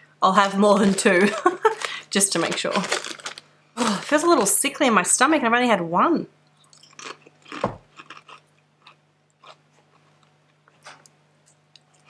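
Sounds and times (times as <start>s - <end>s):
woman crunching a chip: 0.8s - 4.5s, 6.7s - 11.0s.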